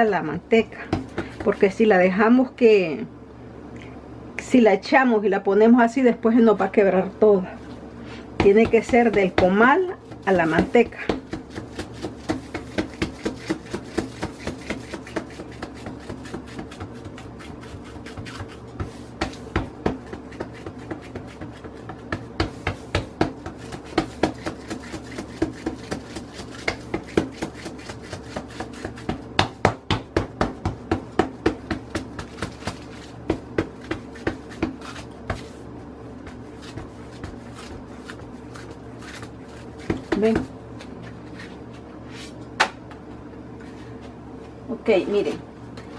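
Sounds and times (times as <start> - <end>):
steady low hum: 0.0 - 45.9
hand slapping dough: 0.2 - 1.9, 8.4 - 43.1.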